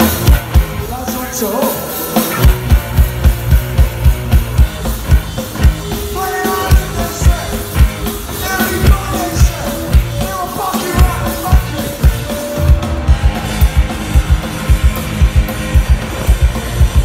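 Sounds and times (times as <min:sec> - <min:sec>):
punk rock band playing: 0:00.0 - 0:17.0
person singing: 0:05.6 - 0:13.6.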